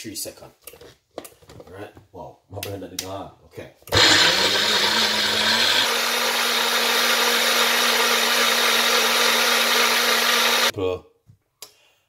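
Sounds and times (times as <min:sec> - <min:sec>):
blender motor running: 0:03.9 - 0:10.7.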